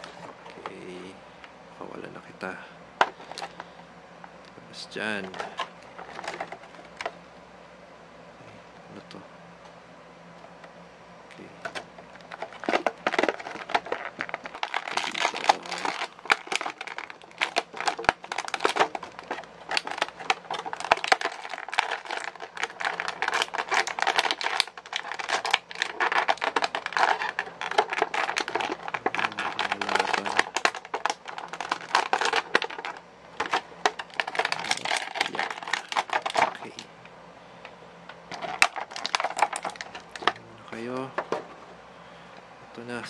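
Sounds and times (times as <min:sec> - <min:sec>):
plastic packaging crinkling and clicking: 0:03.0 - 0:03.7, 0:05.2 - 0:07.2, 0:11.4 - 0:36.9, 0:38.1 - 0:41.4.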